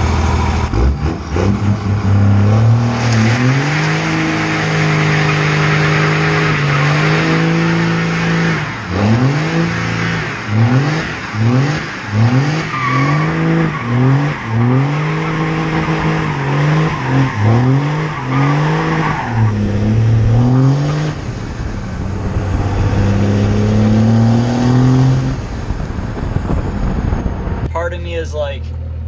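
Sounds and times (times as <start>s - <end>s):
diesel pickup engine accelerating hard: 0.0s - 28.0s.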